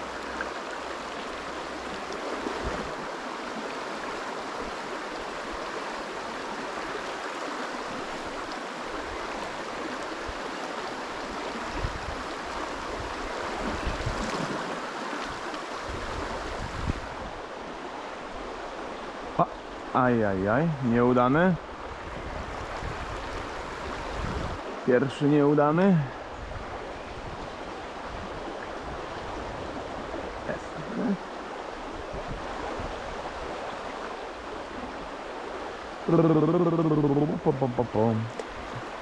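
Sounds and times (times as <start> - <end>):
river rushing over stones: 0.0 - 39.0.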